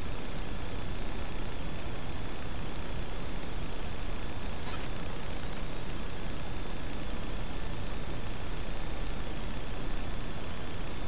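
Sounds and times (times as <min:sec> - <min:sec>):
static hiss: 0:00.0 - 0:11.0.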